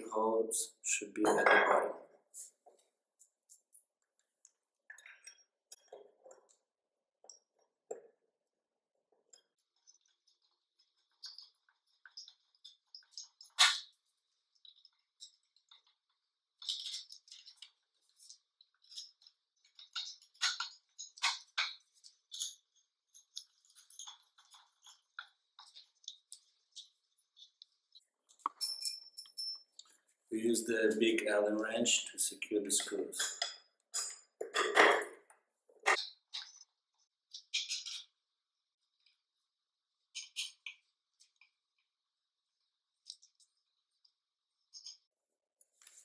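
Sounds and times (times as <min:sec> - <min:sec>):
metal clinks and taps: 0:28.4 - 0:29.9.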